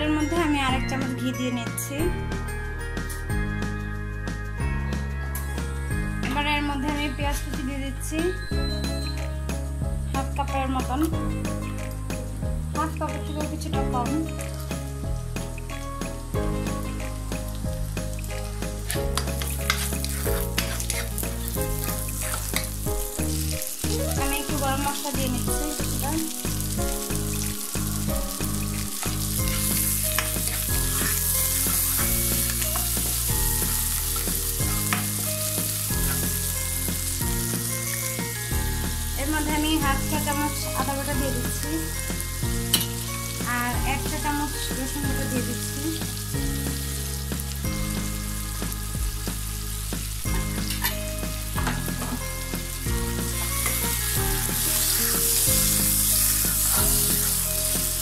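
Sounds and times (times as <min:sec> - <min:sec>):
soft background music: 0:00.0 - 0:58.0
onions sizzling in oil: 0:07.0 - 0:58.0
spatula scraping a pan: 0:18.9 - 0:22.8, 0:28.6 - 0:33.0.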